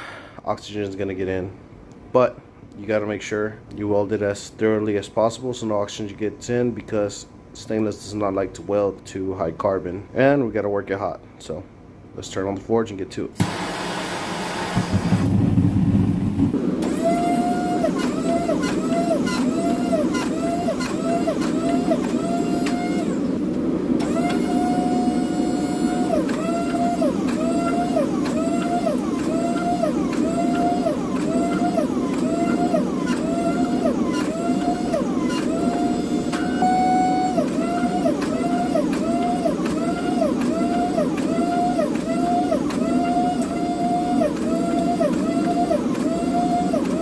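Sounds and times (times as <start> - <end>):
forging press machine whine: 13.4 - 47.0.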